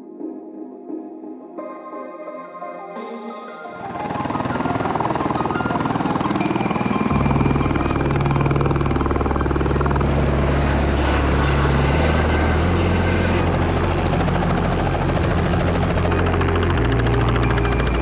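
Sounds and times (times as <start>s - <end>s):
helicopter rapid rotor beat: 3.8s - 18.0s
turbine helicopter hovering: 3.8s - 18.0s.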